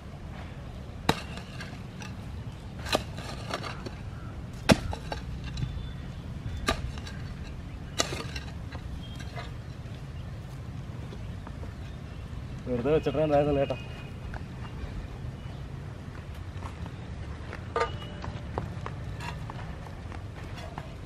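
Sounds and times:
hoe chopping into soil: 1.0s - 2.2s, 2.8s - 5.6s, 7.9s - 8.5s.

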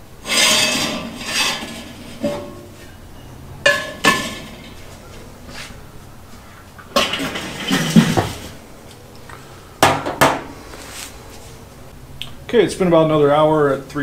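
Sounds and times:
cast iron skillets clanking on grate: 0.2s - 3.0s, 3.6s - 5.0s, 6.8s - 8.6s.

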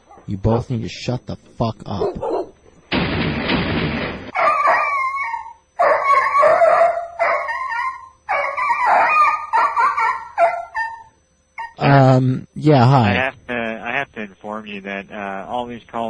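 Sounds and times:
harsh burst of noise: 2.9s - 4.4s
dogs yelping and crying: 4.3s - 11.8s.

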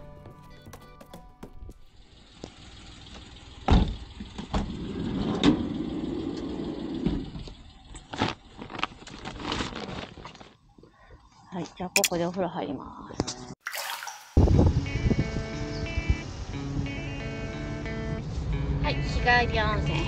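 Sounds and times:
vehicle running hum: 1.6s - 9.2s, 14.7s - 20.0s
vehicle doors thudding shut: 3.6s - 4.8s.

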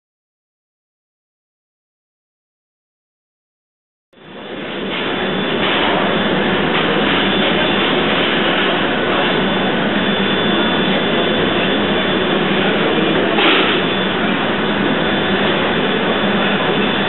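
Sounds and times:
steam engine running: 4.2s - 17.0s.

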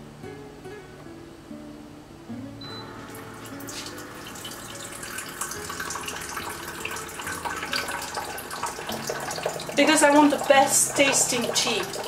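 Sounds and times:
water running into kettle: 3.1s - 12.0s.

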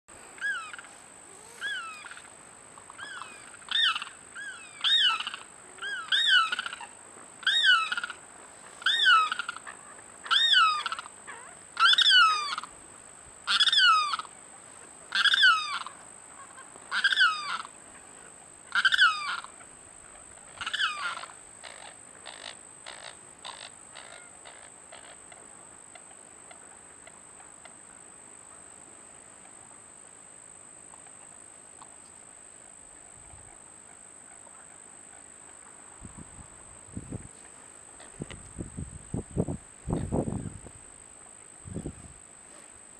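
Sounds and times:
bird loud rising cries: 0.4s - 2.3s, 2.9s - 8.2s.

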